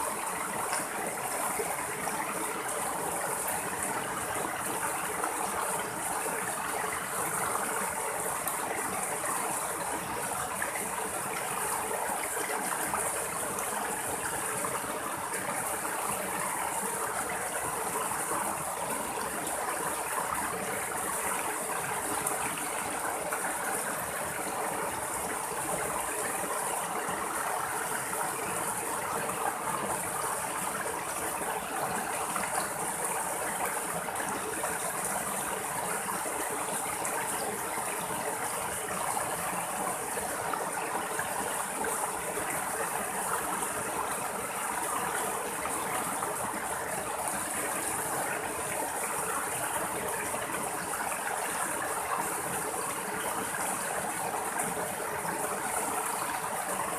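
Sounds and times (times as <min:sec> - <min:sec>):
stream running over rocks: 0:00.0 - 0:56.9.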